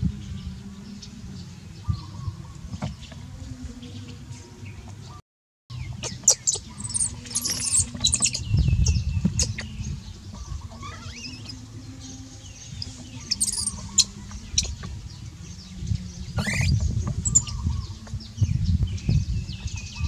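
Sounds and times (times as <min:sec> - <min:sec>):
baby monkey squeaking: 0:05.9 - 0:09.8, 0:10.4 - 0:11.6, 0:12.8 - 0:15.0, 0:16.4 - 0:18.0.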